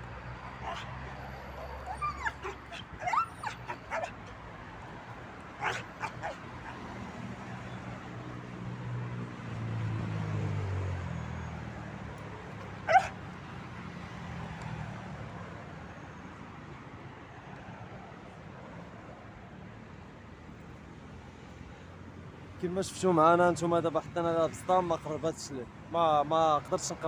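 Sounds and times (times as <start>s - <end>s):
dog yelping barks: 0.6s - 4.4s, 5.6s - 6.8s, 12.8s - 13.2s.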